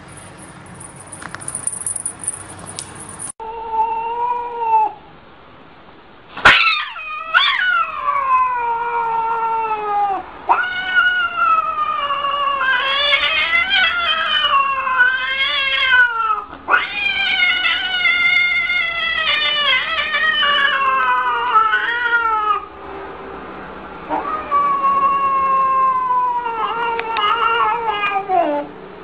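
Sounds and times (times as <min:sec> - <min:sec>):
cat yowling: 0:03.4 - 0:05.0, 0:06.4 - 0:22.7, 0:24.1 - 0:28.7.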